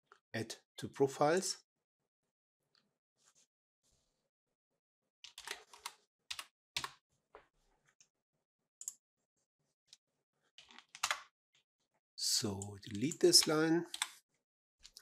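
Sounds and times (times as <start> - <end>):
faint keyboard typing: 5.3 - 7.0, 12.3 - 14.2.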